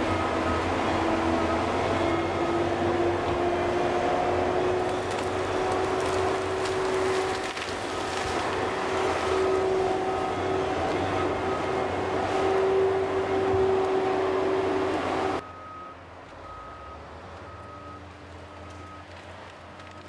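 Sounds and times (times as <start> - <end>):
diesel engine running under load: 0.0 - 20.0
steady engine whine: 0.0 - 20.0
faint cracks and knocks: 4.9 - 8.5, 18.7 - 20.0.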